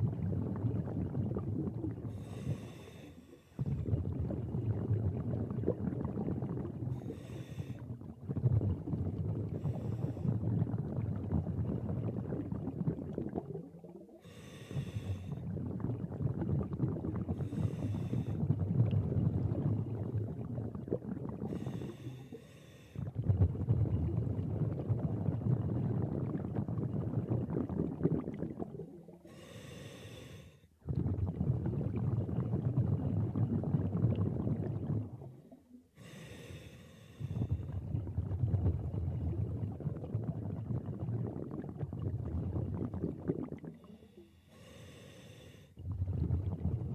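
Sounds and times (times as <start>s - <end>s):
bubbling exhales underwater: 0.0s - 36.3s, 37.2s - 44.8s, 45.7s - 46.9s
regulator hissing inhales: 2.2s - 3.6s, 7.0s - 7.8s, 14.2s - 15.4s, 17.4s - 18.4s, 29.3s - 30.7s, 36.0s - 37.5s, 43.9s - 45.8s.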